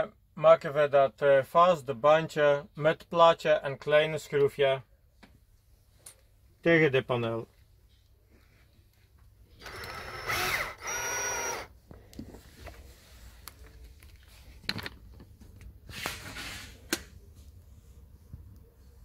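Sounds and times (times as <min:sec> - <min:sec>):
cordless drill motor: 0:09.6 - 0:11.8
clicks and handling noise: 0:11.9 - 0:16.2.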